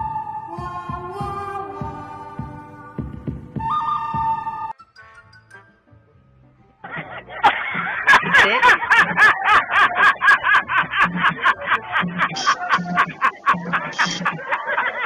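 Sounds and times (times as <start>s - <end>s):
music with ticking beat: 0.0s - 5.9s, 7.4s - 15.0s
man laughing hard: 6.8s - 15.0s.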